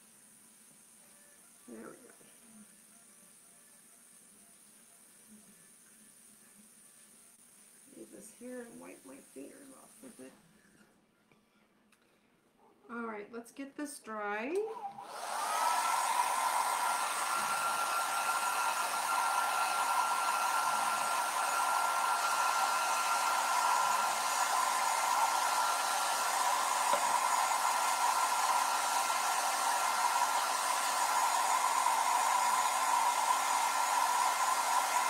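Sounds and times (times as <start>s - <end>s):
hair dryer blowing: 7.9s - 10.3s, 14.5s - 35.0s.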